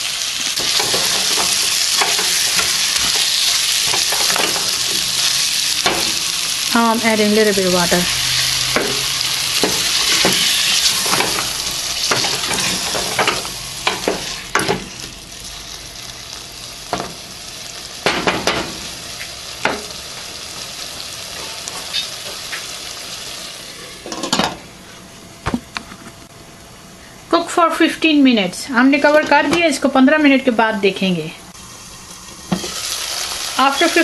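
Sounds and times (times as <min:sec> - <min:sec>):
curry sizzling in hot oil: 0:00.0 - 0:23.8, 0:31.5 - 0:34.0.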